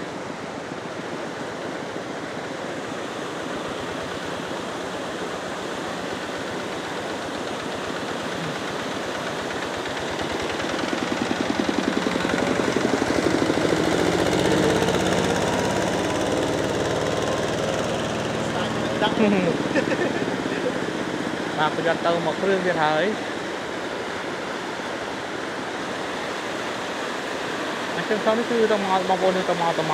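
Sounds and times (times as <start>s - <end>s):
small engine running: 1.2s - 29.9s.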